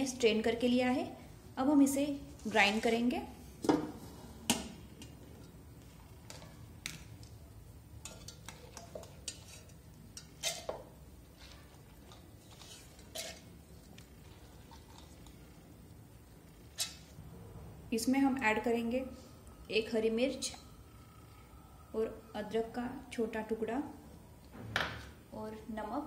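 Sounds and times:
spoon clinking and scraping on steel: 8.0 - 10.8, 11.4 - 13.5.

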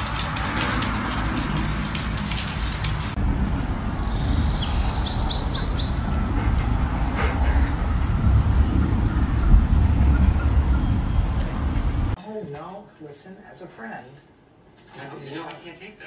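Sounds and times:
low rumble: 0.0 - 12.2
small bird chirping: 3.6 - 6.2.

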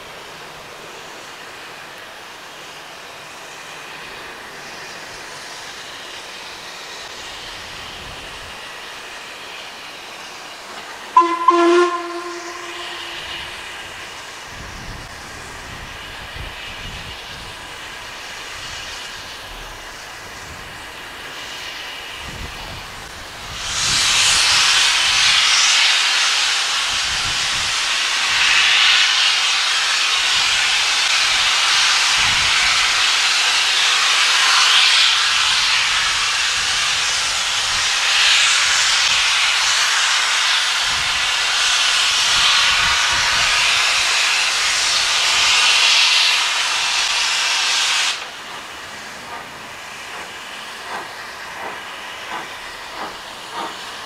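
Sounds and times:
hiss of escaping steam: 0.0 - 54.0
steam locomotive whistle: 11.2 - 14.4.

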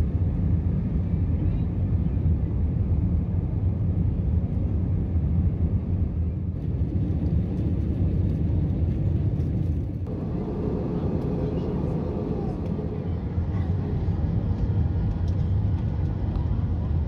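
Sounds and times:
jet engines rumbling in cabin: 0.0 - 17.0.

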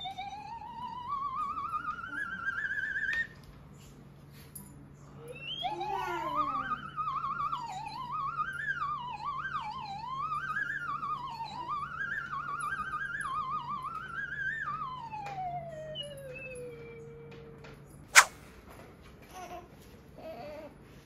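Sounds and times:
eerie theremin tone with vibrato: 0.0 - 3.3, 5.2 - 17.5.

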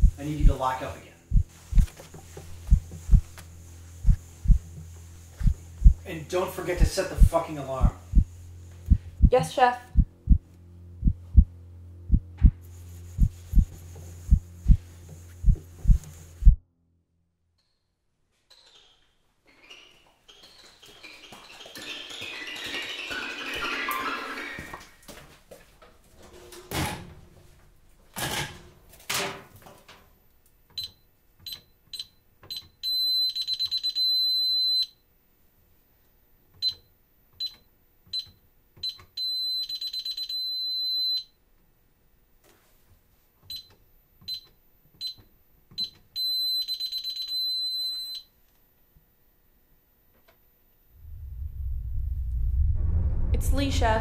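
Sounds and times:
alarm keypad key-press beeps: 30.8 - 34.9, 38.9 - 41.3, 45.8 - 48.2.

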